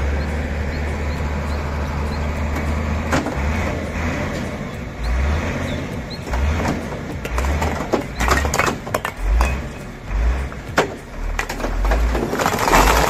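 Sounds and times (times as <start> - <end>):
bricks clattering onto pile: 6.6 - 13.0.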